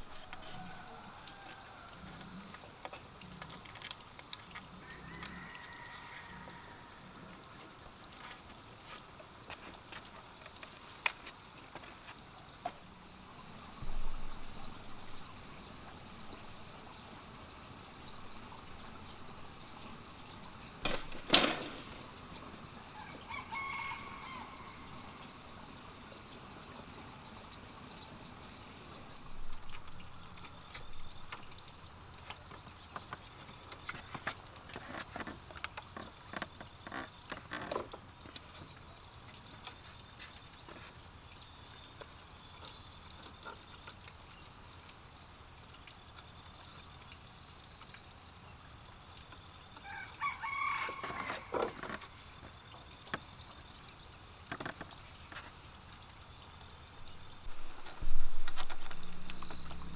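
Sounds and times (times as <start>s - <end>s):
bamboo poles tapping and clicking: 0.0s - 5.4s, 7.4s - 12.8s, 29.6s - 41.0s, 50.8s - 53.6s, 54.4s - 55.6s
rooster crowing: 0.2s - 2.2s, 4.8s - 7.1s, 22.9s - 25.1s, 49.8s - 51.8s.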